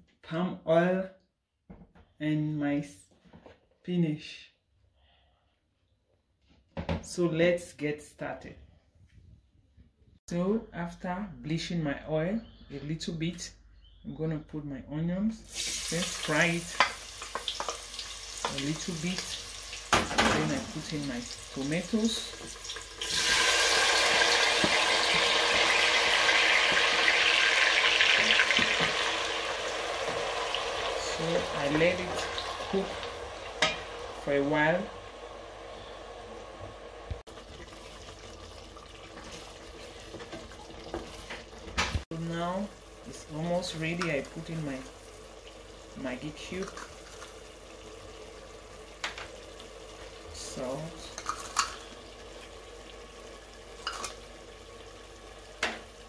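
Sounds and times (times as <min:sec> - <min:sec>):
frying hiss: 0:15.4 - 0:56.0
stew simmering: 0:15.5 - 0:56.0.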